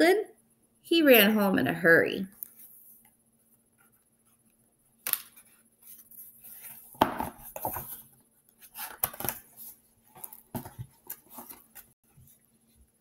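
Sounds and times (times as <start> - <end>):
book page rustling and taps: 6.6 - 8.1, 10.1 - 11.9.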